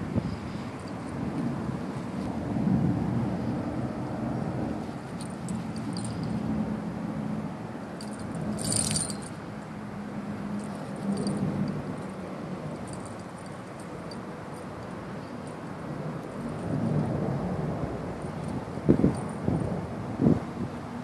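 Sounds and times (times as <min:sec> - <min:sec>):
light metallic jingling: 0:00.2 - 0:02.3, 0:04.8 - 0:06.9, 0:07.7 - 0:20.0.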